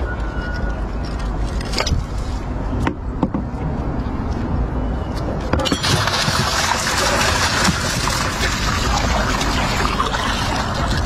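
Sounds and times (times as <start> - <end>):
water rushing along hull: 5.7 - 11.0.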